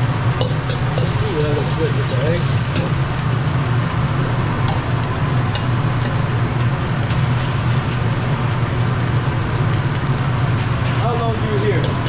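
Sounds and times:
gas burner roaring: 0.0 - 12.0.

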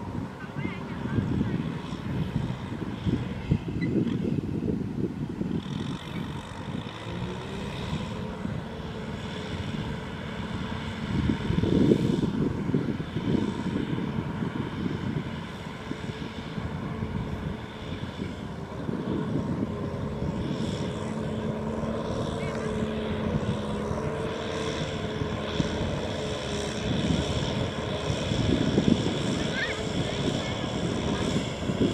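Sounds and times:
tractor diesel engine running: 0.0 - 31.9.

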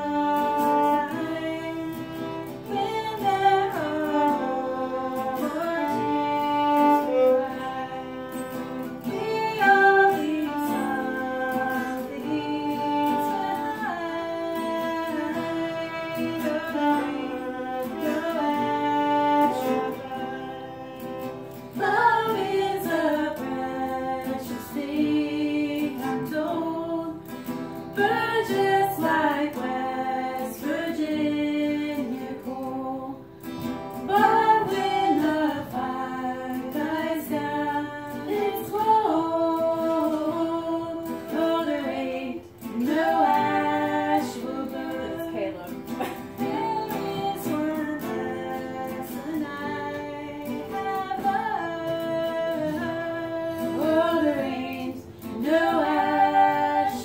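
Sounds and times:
fiddle bowing: 0.0 - 25.2
strummed acoustic guitar: 0.0 - 57.0
woman singing: 0.0 - 57.0.

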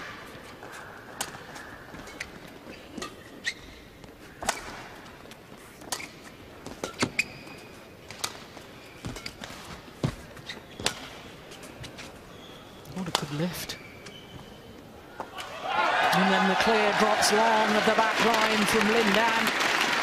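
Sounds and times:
shoes squeaking on court: 0.0 - 15.4.

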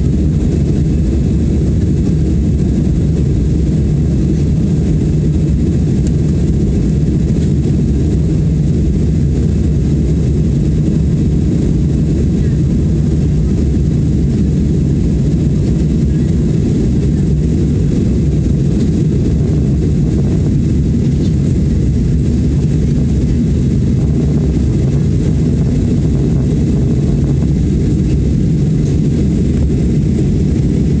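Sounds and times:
airplane cabin engine rumble: 0.0 - 31.0.

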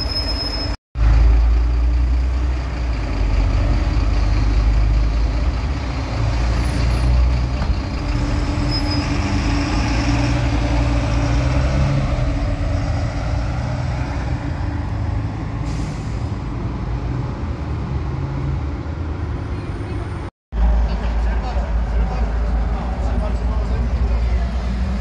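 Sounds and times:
bus engine rumble: 0.0 - 25.0.

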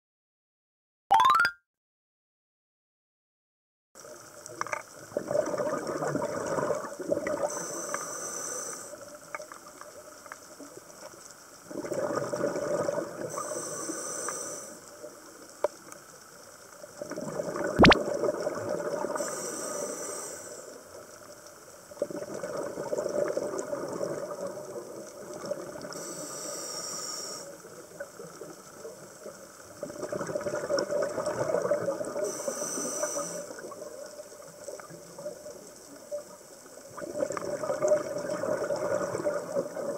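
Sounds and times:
bubbling gurgle on exhale: 5.0 - 7.8, 11.6 - 13.6, 16.9 - 19.7, 21.9 - 26.1, 29.6 - 32.4, 36.8 - 39.9
regulator hiss on inhale: 7.4 - 9.4, 13.2 - 15.3, 19.0 - 21.6, 25.8 - 28.0, 32.1 - 33.9.

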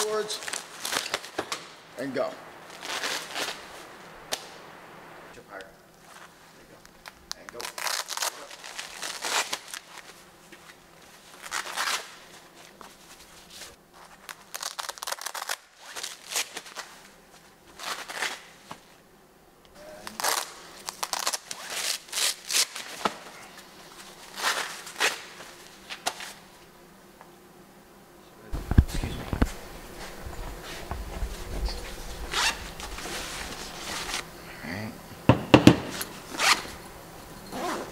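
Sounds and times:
hook-and-loop ripping: 0.0 - 1.8, 2.6 - 4.6, 6.0 - 12.8, 13.4 - 18.9, 19.9 - 26.5, 31.4 - 34.3, 36.3 - 36.7
nylon straps rustling: 0.0 - 1.8, 2.6 - 4.6, 6.0 - 19.0, 20.0 - 26.5, 28.6 - 34.3, 35.9 - 36.8, 37.5 - 37.9.

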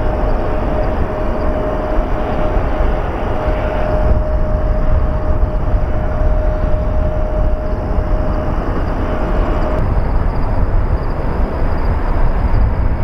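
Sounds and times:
thin steady tone: 0.0 - 12.7
jet engine rumble: 0.0 - 13.0.

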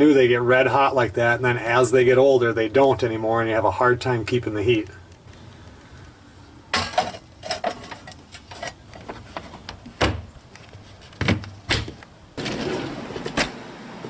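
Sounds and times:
metal pot set down: 6.8 - 8.8
utensils clattering in drawer: 6.8 - 8.8
wooden door shutting: 10.0 - 10.3, 11.2 - 13.7.

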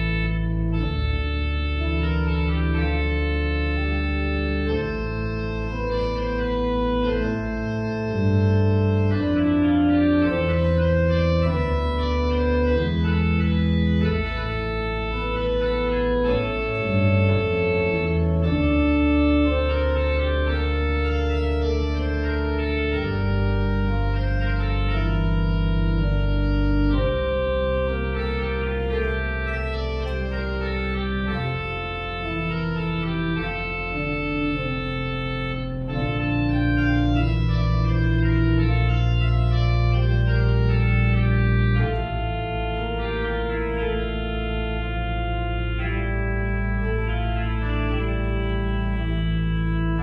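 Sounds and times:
organ playing sustained chords: 0.0 - 50.0.

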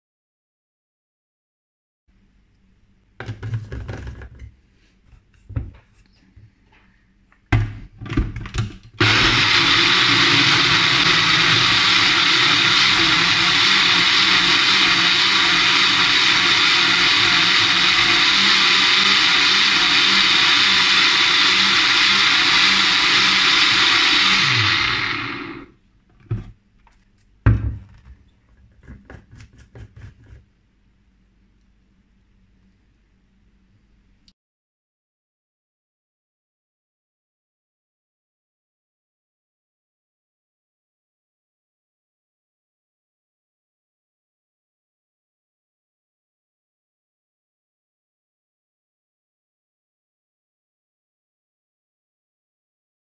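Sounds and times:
plastic cup knocking: 3.2 - 4.4
blender motor running: 9.0 - 25.7.

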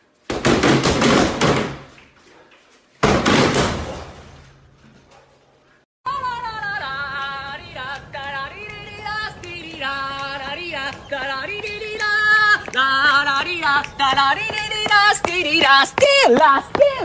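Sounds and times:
woman singing: 6.1 - 17.0.

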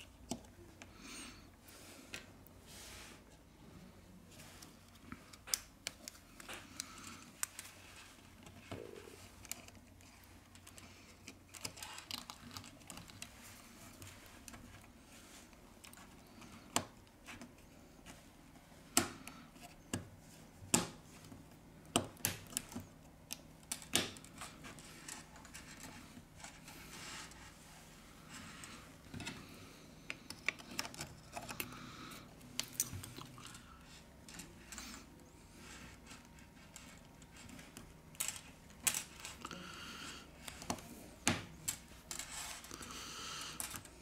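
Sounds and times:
small clicks and taps of parts: 30.0 - 31.8.

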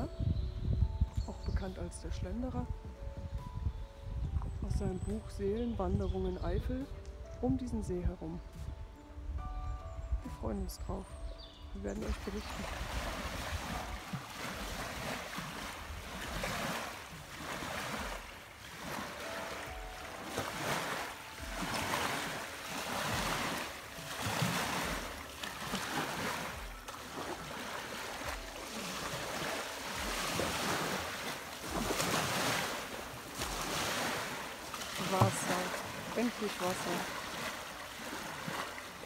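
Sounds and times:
wind buffeting microphone: 0.0 - 27.6
waves breaking on gravel shore: 12.2 - 39.0.

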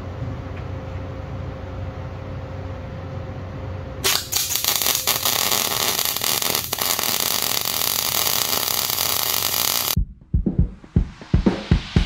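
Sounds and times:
welding arc crackling hiss: 4.0 - 10.0.

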